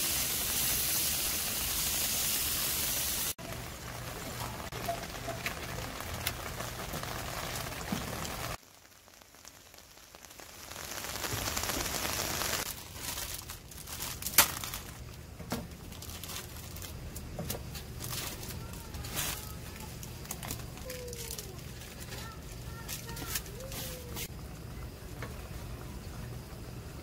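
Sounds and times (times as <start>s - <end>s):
water bubbling at the boil: 3.3s - 12.7s, 24.3s - 27.0s
plastic packet crinkling and tearing: 10.0s - 15.2s, 15.8s - 17.2s, 17.8s - 24.3s.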